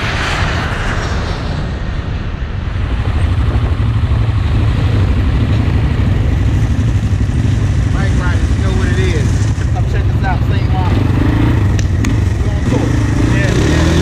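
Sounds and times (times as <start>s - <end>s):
quad bike engines running: 4.2s - 14.0s.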